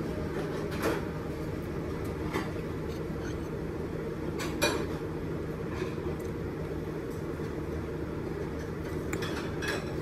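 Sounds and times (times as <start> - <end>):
steady background hum: 0.0 - 10.0
utensils clinking against a plate: 2.0 - 3.6, 4.4 - 5.1, 8.5 - 10.0.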